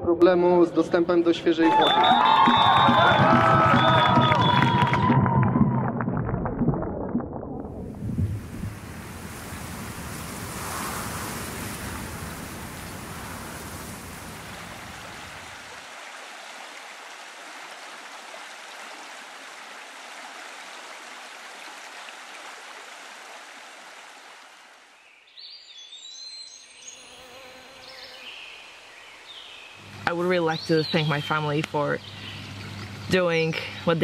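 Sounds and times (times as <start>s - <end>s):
birds chirping: 25.0s - 34.0s.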